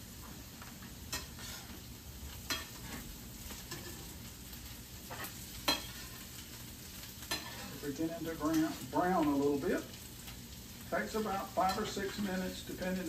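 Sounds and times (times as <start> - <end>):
potatoes sizzling in a skillet: 0.0 - 13.0
spoon scraping and clinking on pan: 1.1 - 1.7, 2.5 - 3.0, 3.7 - 4.1, 5.1 - 6.3, 7.3 - 7.8, 11.6 - 12.3.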